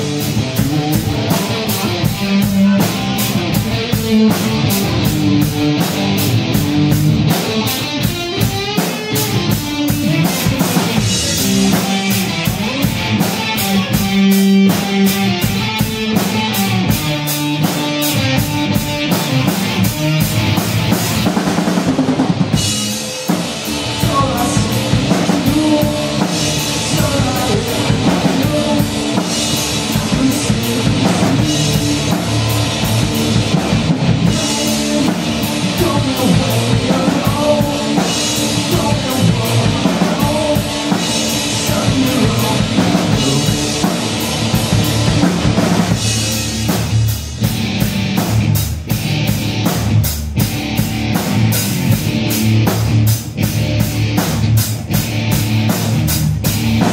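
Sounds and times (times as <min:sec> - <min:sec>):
distorted electric guitar: 0:00.0 - 0:56.9
drum kit: 0:00.0 - 0:56.9
person singing: 0:23.6 - 0:44.3.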